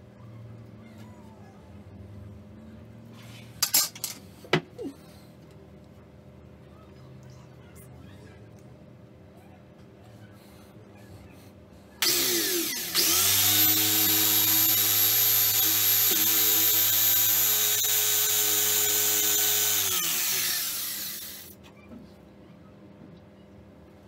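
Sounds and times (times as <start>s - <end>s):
electric drill boring wood: 12.0s - 21.6s.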